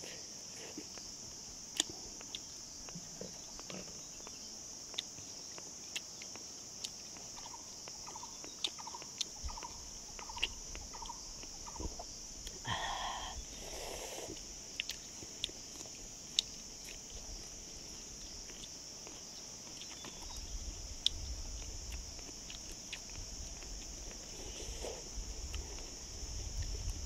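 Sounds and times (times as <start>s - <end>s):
high-pitched insect chorus: 0.0s - 27.0s.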